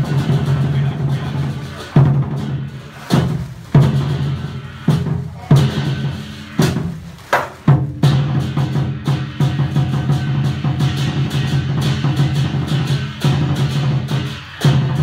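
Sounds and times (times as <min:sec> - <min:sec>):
lion dance percussion music: 0:00.0 - 0:15.0.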